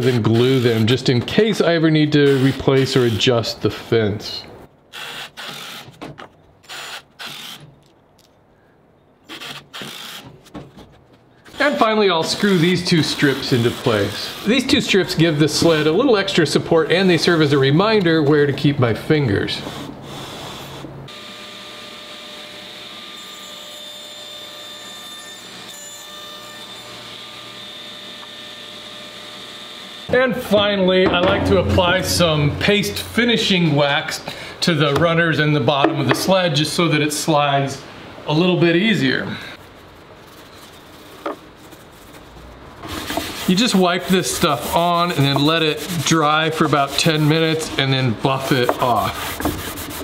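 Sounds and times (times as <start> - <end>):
impact driver driving screws: 4.9 - 7.9, 9.3 - 10.4.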